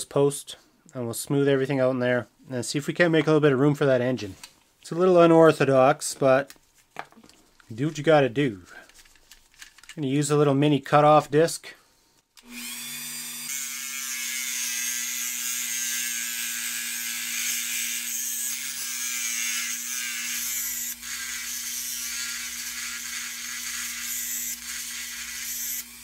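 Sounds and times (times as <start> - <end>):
rotary tool motor whine: 12.4 - 15.8.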